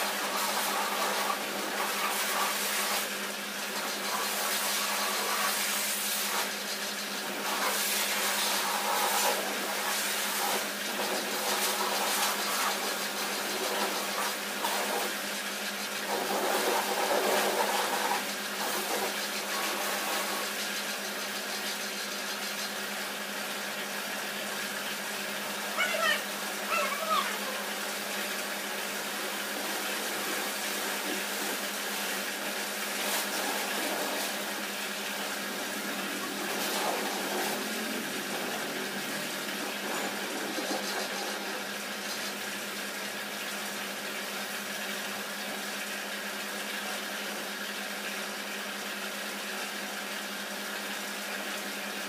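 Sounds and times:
high-pressure water jet hissing: 0:00.0 - 0:52.0
pressure washer pump hum: 0:00.0 - 0:52.0.

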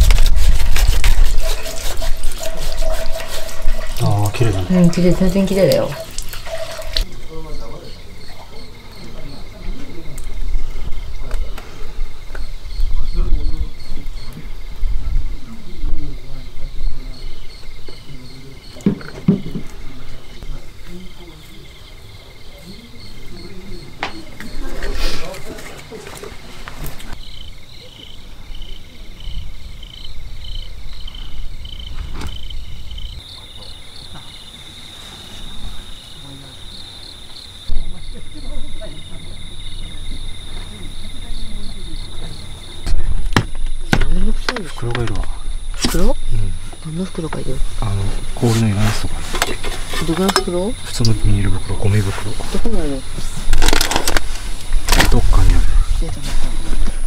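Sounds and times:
crickets and insects chirping: 0:00.0 - 0:57.0.

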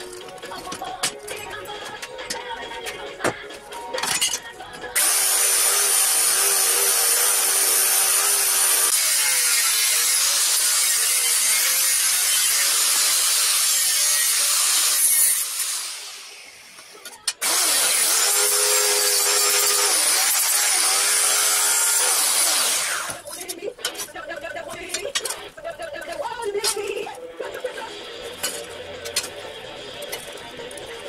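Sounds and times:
belt file grinding steel: 0:04.9 - 0:24.0.

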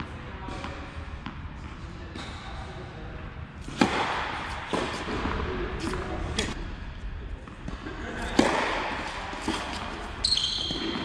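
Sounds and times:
racket striking tennis ball: 0:03.6 - 0:06.6, 0:08.2 - 0:11.0
tennis ball bouncing: 0:03.7 - 0:06.6, 0:07.7 - 0:11.0.

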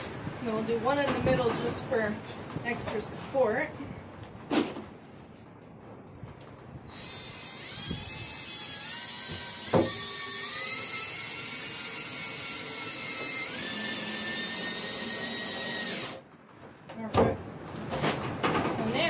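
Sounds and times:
cordless drill motor whining: 0:06.9 - 0:16.2.

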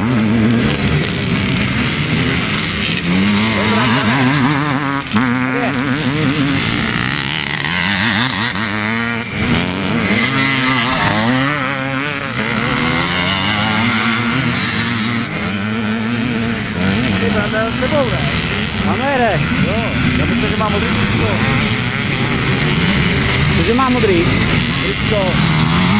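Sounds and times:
motorcycle engines revving: 0:00.0 - 0:25.9.

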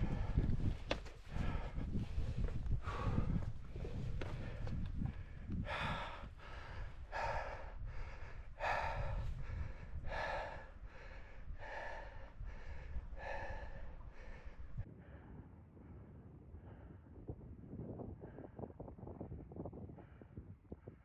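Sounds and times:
man panting: 0:00.0 - 0:15.4
wind rumble on microphone: 0:00.0 - 0:21.0.

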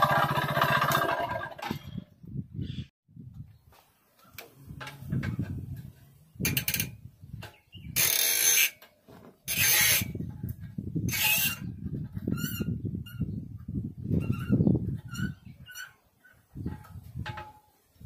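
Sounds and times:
metallic ratcheting: 0:04.8 - 0:08.9, 0:09.5 - 0:10.3.

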